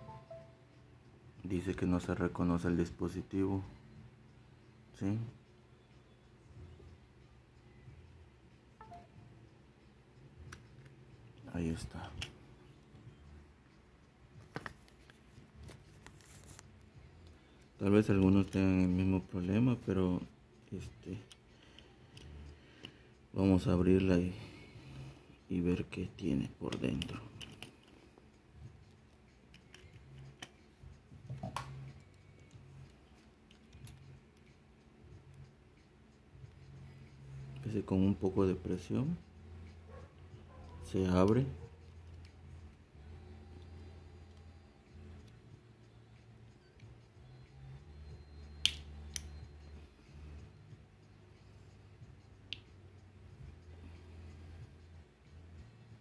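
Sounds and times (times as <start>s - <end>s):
small plastic and metal clicks: 26.7s - 27.9s, 48.6s - 49.3s.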